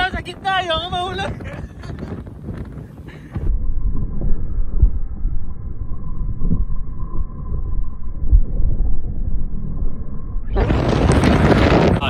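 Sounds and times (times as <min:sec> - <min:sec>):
wind rumble buffeting microphone: 0:00.0 - 0:12.0.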